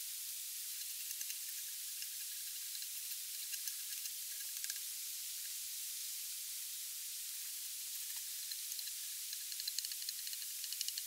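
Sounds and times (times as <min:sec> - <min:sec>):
fast-flowing river hiss: 0:00.0 - 0:11.0
faint light ticks: 0:08.0 - 0:11.0.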